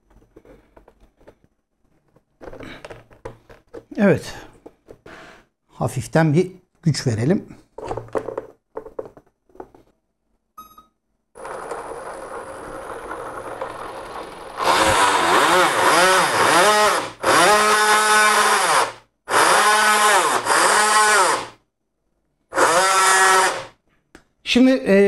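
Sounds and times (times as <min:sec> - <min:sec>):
electric motor whining: 0:14.6 - 0:21.5, 0:22.5 - 0:23.7.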